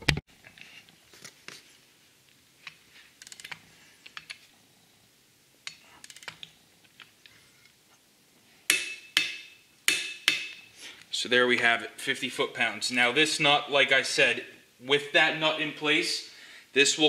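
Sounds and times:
ratcheting torque wrench clicking: 0:03.2 - 0:03.6, 0:05.7 - 0:06.5.

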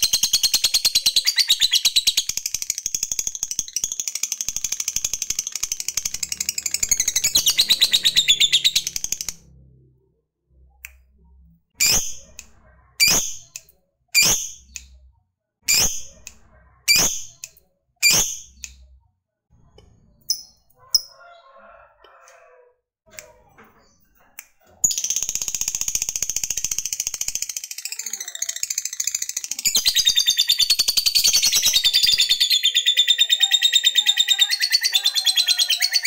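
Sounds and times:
bird chattering high chirps: 0:00.0 - 0:09.4, 0:24.8 - 0:36.0.

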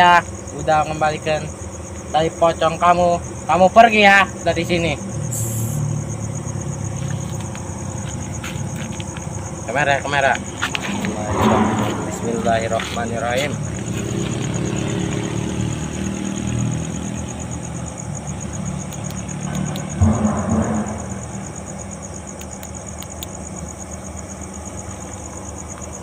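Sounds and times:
insects chirping: 0:00.0 - 0:26.0
thump: 0:10.9 - 0:12.5, 0:19.9 - 0:21.7
low machine hum: 0:19.0 - 0:25.6.

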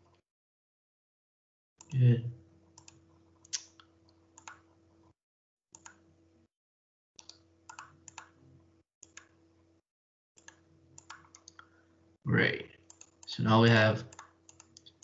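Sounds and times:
computer mouse clicks: 0:02.8 - 0:04.7, 0:05.8 - 0:06.0, 0:07.2 - 0:08.4, 0:09.0 - 0:09.4, 0:10.4 - 0:11.7, 0:12.8 - 0:13.3, 0:14.1 - 0:15.0.

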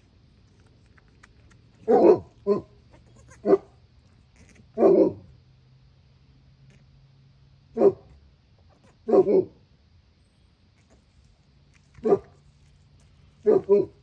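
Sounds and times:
dog barking: 0:01.8 - 0:02.8, 0:03.4 - 0:03.8, 0:04.8 - 0:05.3, 0:07.8 - 0:08.1, 0:09.0 - 0:09.6, 0:12.0 - 0:12.4, 0:13.4 - 0:14.0.

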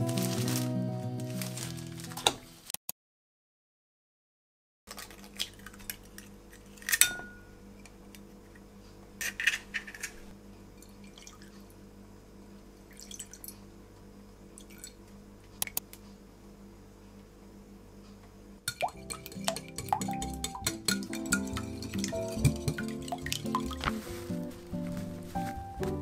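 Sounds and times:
egg cracking: 0:18.7 - 0:24.9.

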